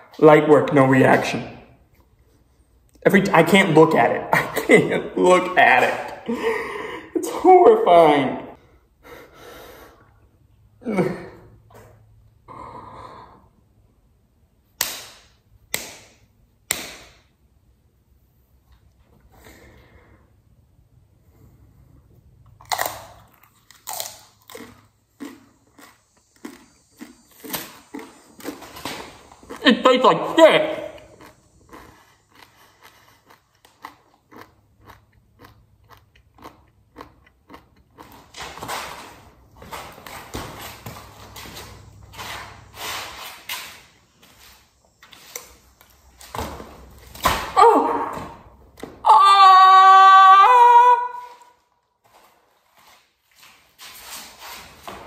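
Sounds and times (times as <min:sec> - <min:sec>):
man breathing hard: 0:06.3 - 0:07.2, 0:08.7 - 0:10.2
person chewing crunchy chip: 0:22.6 - 0:29.9, 0:30.7 - 0:38.4.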